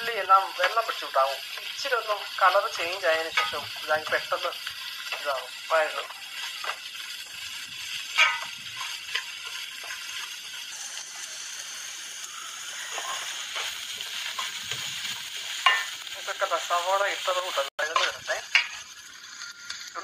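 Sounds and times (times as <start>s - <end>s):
onions sizzling in oil: 0.0s - 20.0s
spoon scraping metal pan: 2.8s - 7.2s, 7.9s - 11.3s, 12.9s - 16.0s, 17.8s - 19.8s.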